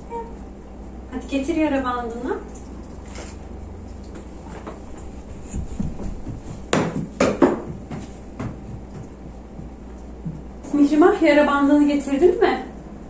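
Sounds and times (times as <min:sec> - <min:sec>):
low room hum: 0:00.0 - 0:13.0
household things knocking: 0:05.8 - 0:09.1.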